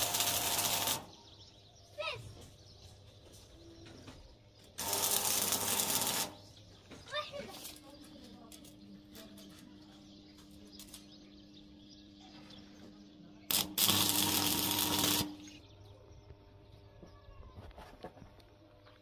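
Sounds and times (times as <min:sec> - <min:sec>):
arc welding crackle and sizzle: 0:00.0 - 0:01.4, 0:04.6 - 0:06.6, 0:07.3 - 0:11.4, 0:13.4 - 0:15.8.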